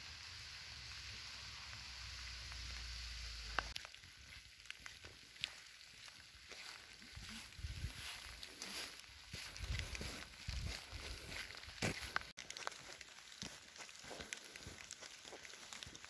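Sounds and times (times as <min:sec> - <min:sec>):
steady hiss: 0:00.0 - 0:03.8
footsteps on gravel: 0:03.7 - 0:16.0.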